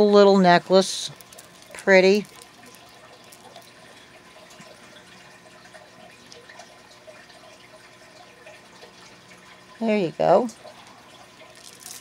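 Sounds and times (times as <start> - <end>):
bead necklaces clicking: 11.6 - 12.0.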